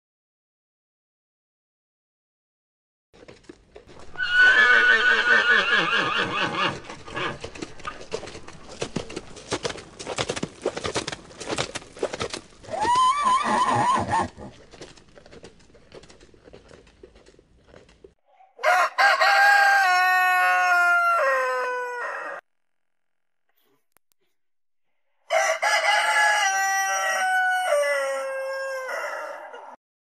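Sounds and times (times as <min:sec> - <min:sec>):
horses galloping hoofbeats: 0:03.2 - 0:18.2
horse whinnying: 0:04.1 - 0:07.5, 0:12.6 - 0:14.6
rooster crowing: 0:18.6 - 0:22.4, 0:25.3 - 0:29.8.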